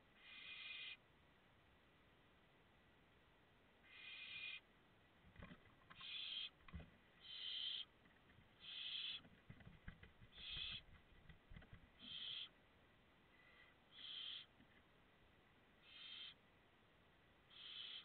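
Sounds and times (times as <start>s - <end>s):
owl chicks hissing calls: 0.2s - 1.0s, 3.8s - 4.6s, 6.0s - 6.6s, 7.2s - 7.9s, 8.6s - 9.3s, 10.3s - 10.9s, 12.0s - 12.6s, 13.3s - 14.6s, 15.8s - 16.4s, 17.5s - 18.0s
owls bumping in wooden nestbox: 5.3s - 7.9s, 8.6s - 12.5s.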